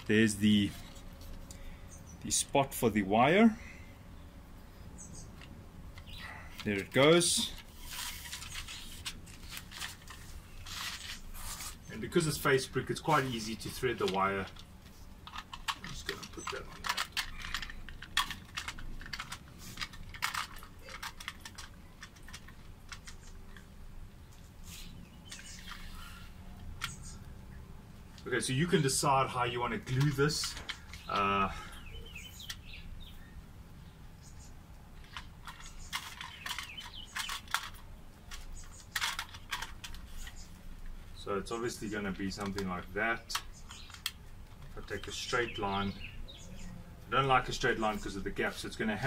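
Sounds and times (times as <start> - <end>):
birds chirping: 0.0 - 49.0
plastic scraping against brick: 6.0 - 11.9, 13.0 - 23.6, 35.0 - 40.6.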